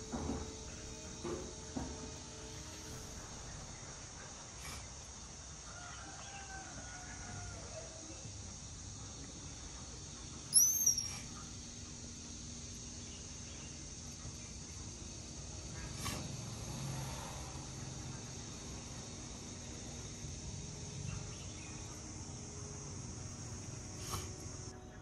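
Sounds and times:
rooster crowing: 5.4s - 8.2s
high-pitched squeak: 10.6s - 11.3s.

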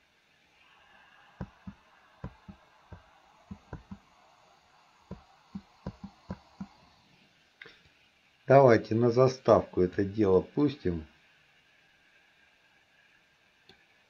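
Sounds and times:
keyboard spacebar tapping: 1.4s - 2.6s, 3.5s - 4.0s, 5.1s - 6.8s.

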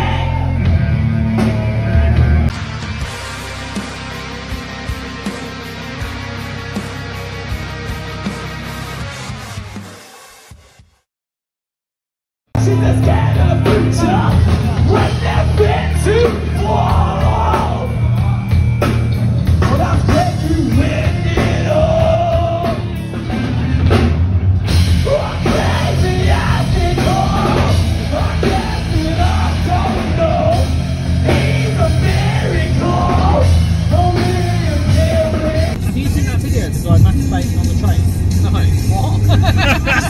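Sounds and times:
vocalist singing and yelling: 0.0s - 2.5s, 12.6s - 18.7s, 19.6s - 23.4s, 24.9s - 40.0s
electric guitar: 0.0s - 9.9s, 12.6s - 36.2s
bass guitar: 0.0s - 10.0s, 12.6s - 40.0s
drums: 0.0s - 11.1s, 12.5s - 40.0s.

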